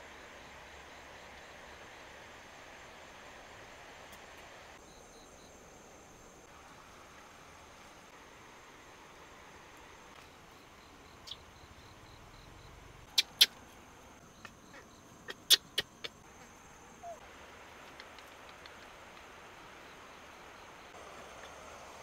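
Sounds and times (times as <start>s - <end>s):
crickets trilling: 4.8s - 6.9s, 8.8s - 22.0s.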